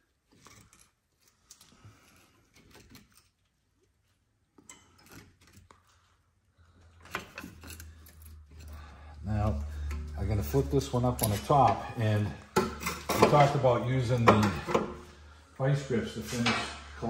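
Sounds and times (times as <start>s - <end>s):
hand tools clicking and scraping: 7.0s - 15.0s.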